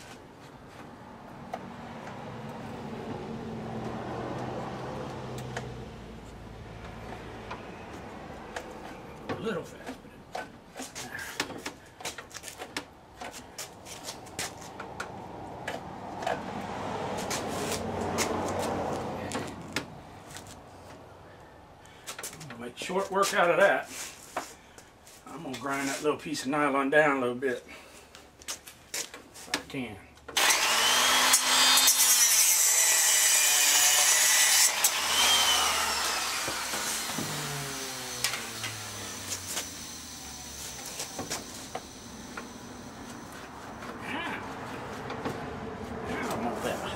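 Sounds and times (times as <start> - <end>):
scraping rubbing noise: 17.1 - 18.9
power grinder grinding: 30.4 - 44.0.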